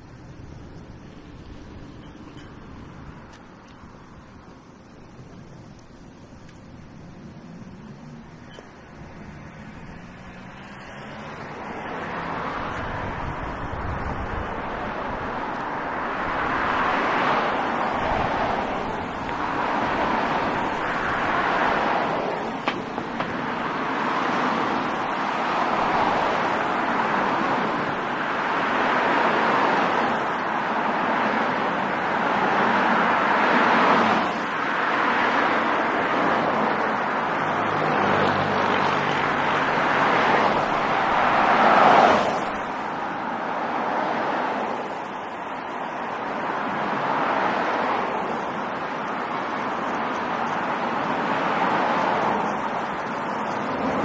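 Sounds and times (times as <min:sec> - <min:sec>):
cars driving past: 0:00.0 - 0:54.0.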